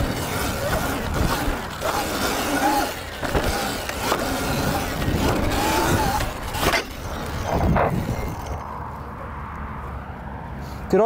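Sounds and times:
electric motorbike motor whining: 0.0s - 8.8s
tyres rushing on asphalt: 0.0s - 11.0s.

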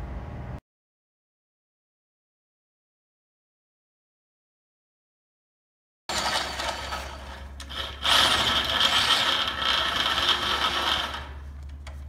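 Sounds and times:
electric drill boring into steel: 6.1s - 11.4s.

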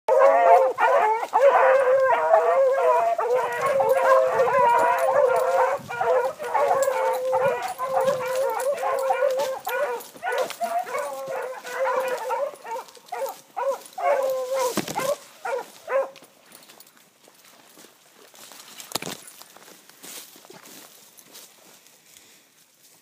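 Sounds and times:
dog howling and yelping: 0.1s - 16.1s.

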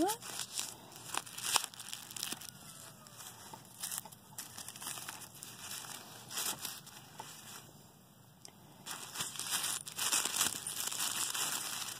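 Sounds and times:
wrapping crinkling and rustling: 0.0s - 7.7s, 8.8s - 11.9s.

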